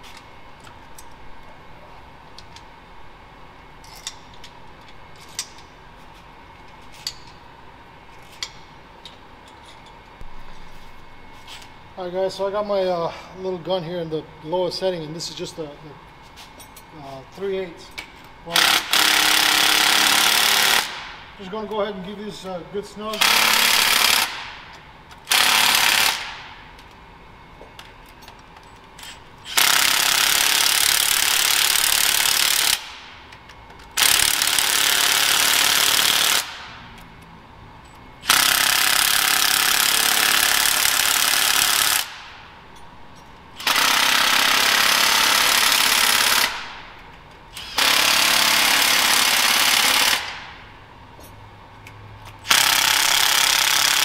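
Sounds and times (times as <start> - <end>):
impact wrench hammering: 18.5 - 21.2, 52.4 - 54.0.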